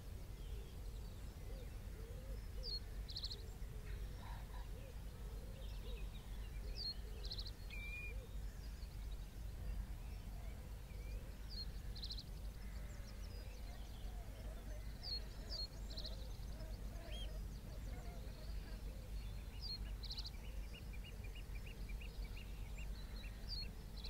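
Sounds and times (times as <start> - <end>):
fainter lower bird calls: 1.5 - 24.0
small bird singing with trill: 5.7 - 8.3.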